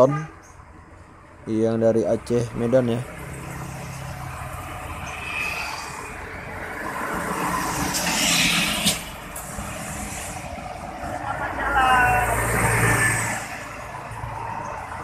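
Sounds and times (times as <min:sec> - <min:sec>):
truck driving past: 0:02.2 - 0:15.0.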